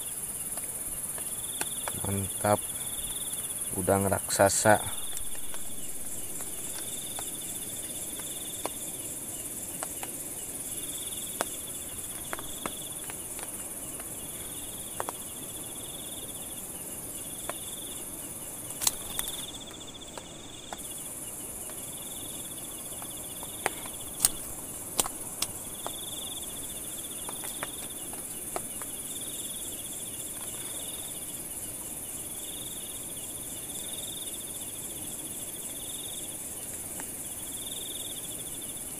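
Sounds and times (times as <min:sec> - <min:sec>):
crickets trilling: 0:00.0 - 0:38.9
high-pitched insect drone: 0:00.0 - 0:38.9.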